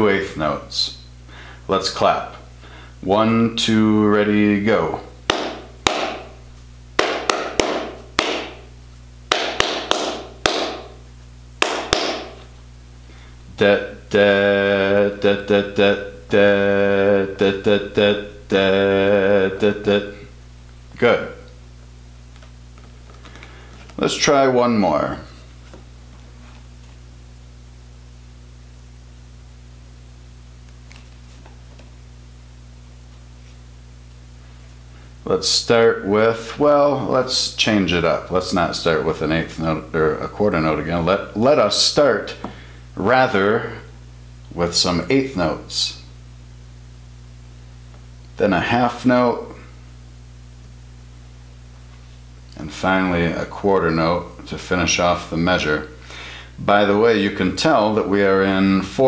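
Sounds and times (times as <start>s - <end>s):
low electrical hum: 0.0s - 59.0s
hands clapping a rhythm: 5.3s - 6.3s, 7.0s - 8.6s, 9.3s - 11.0s, 11.6s - 12.4s.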